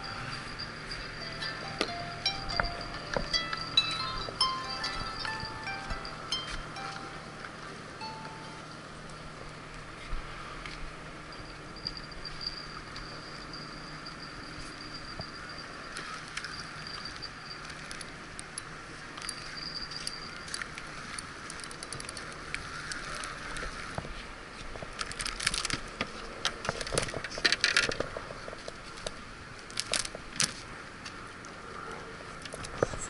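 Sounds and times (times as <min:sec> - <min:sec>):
steady outdoor hiss: 0:00.0 - 0:33.0
metallic clicks of fishing tackle: 0:16.0 - 0:23.7.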